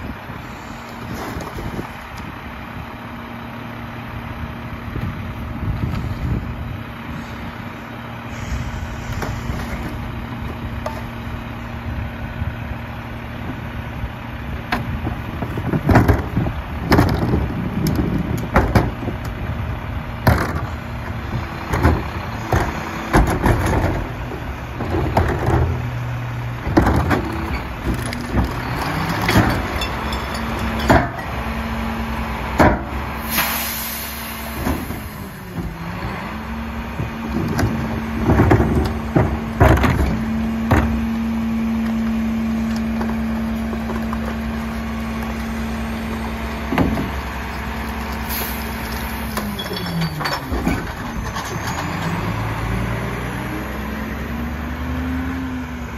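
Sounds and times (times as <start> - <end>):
bins banging into hopper: 26.7 - 31.4, 37.4 - 41.0.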